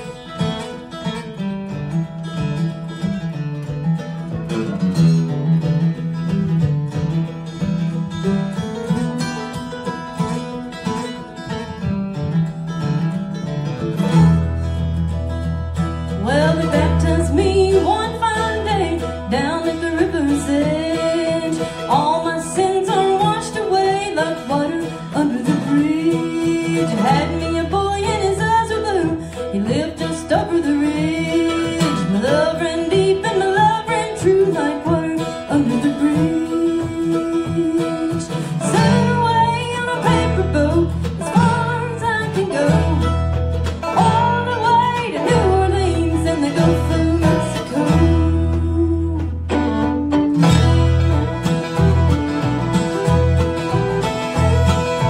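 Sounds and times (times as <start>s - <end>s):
banjo rolls: 0.0s - 55.0s
strummed acoustic guitar: 0.0s - 55.0s
upright bass: 0.0s - 55.0s
woman singing: 8.8s - 10.0s, 16.1s - 49.9s.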